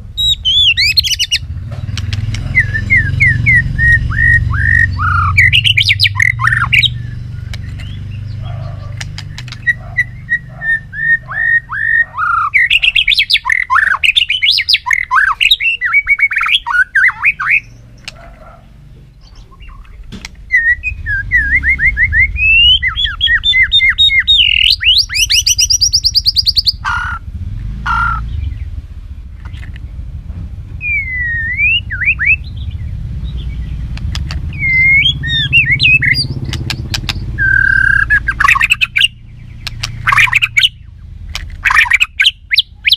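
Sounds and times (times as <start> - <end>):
bird song with whistles and trills: 0.1 - 27.2, 27.9 - 28.8, 30.7 - 41.0, 41.6 - 42.9.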